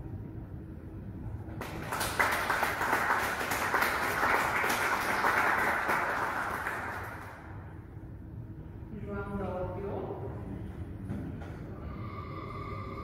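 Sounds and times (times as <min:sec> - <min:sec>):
audience applauding: 0:01.6 - 0:07.6.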